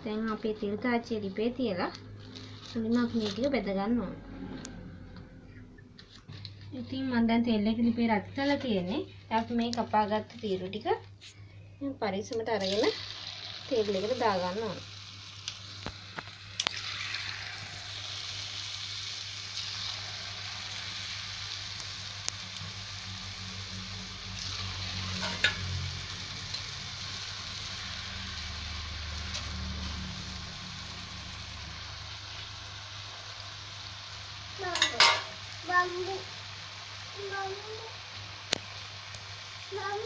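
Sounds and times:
dough deep-frying in oil: 0:12.2 - 0:40.0.

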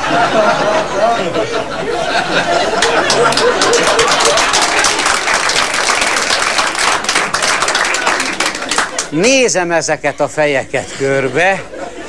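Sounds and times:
audience laughing: 0:00.0 - 0:09.1, 0:10.5 - 0:12.0
audience applauding: 0:02.5 - 0:09.2.

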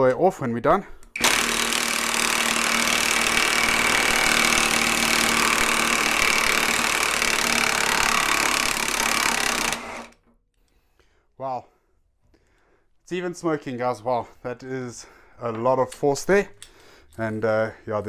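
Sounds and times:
cordless impact wrench hammering: 0:01.2 - 0:10.2.

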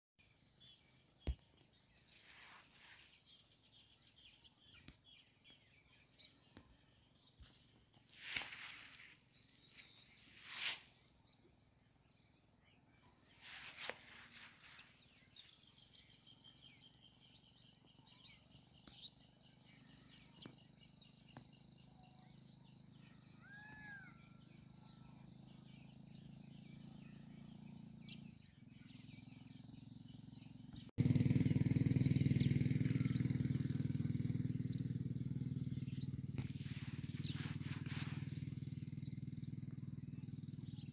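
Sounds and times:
insects chirring: 0:00.2 - 0:40.9
bird call: 0:08.2 - 0:11.0, 0:13.3 - 0:17.0, 0:22.1 - 0:26.0, 0:35.7 - 0:40.9.

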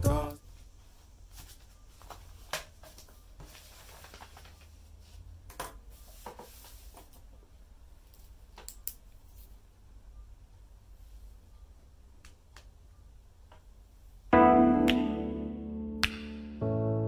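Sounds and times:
paper rustling: 0:01.3 - 0:05.2.

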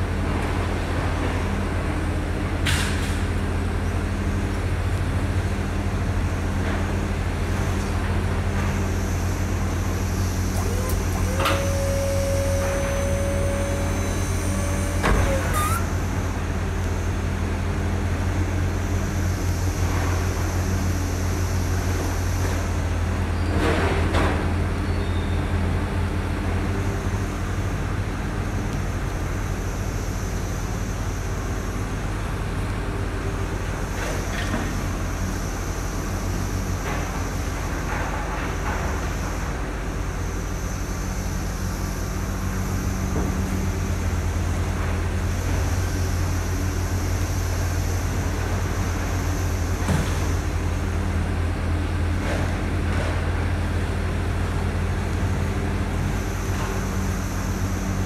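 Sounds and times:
truck engine idling: 0:09.7 - 0:17.2.

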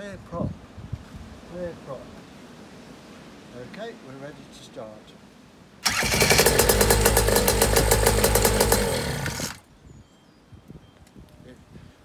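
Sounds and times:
electric starter: 0:05.8 - 0:09.6
two-stroke engine running unevenly: 0:05.8 - 0:09.6.

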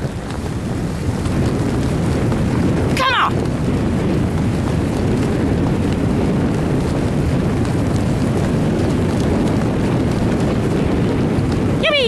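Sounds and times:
dog sled rumbling over snow: 0:00.0 - 0:12.0.

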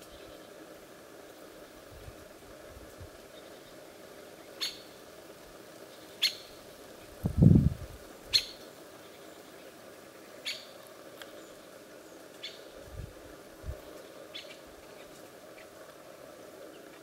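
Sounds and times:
woodpecker call notes: 0:04.4 - 0:05.0, 0:05.9 - 0:06.6, 0:08.3 - 0:09.3, 0:10.4 - 0:11.6, 0:12.4 - 0:12.8, 0:14.3 - 0:15.8.

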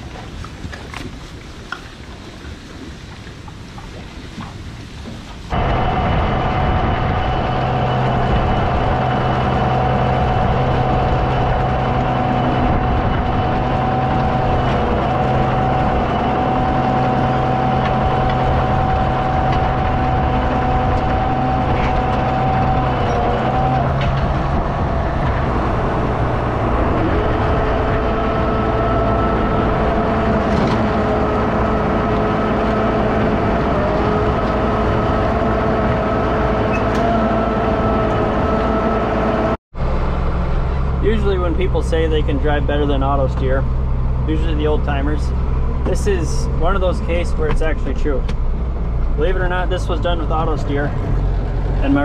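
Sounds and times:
feed mixer machine drone: 0:05.5 - 0:42.3.

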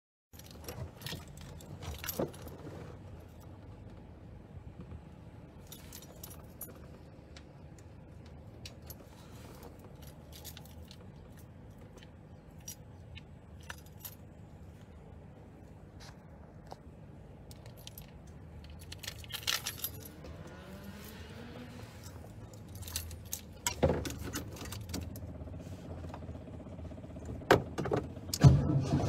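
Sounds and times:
keys jangling: 0:13.4 - 0:14.4, 0:17.5 - 0:21.3, 0:22.0 - 0:25.2.

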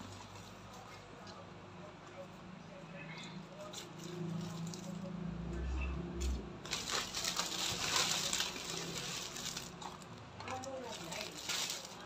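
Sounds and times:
plastic packaging crinkling: 0:06.6 - 0:12.0.

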